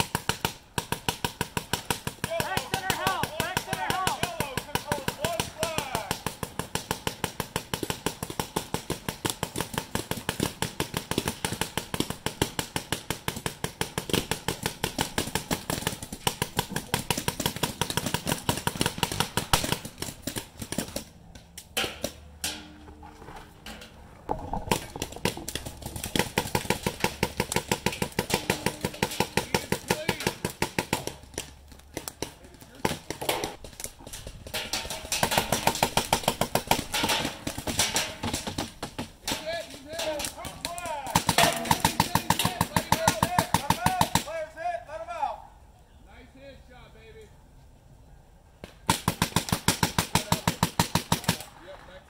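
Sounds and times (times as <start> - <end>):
paintball marker firing rapidly: 0.0 - 21.1, 25.1 - 31.4, 35.2 - 37.7, 41.1 - 44.3, 48.9 - 51.5.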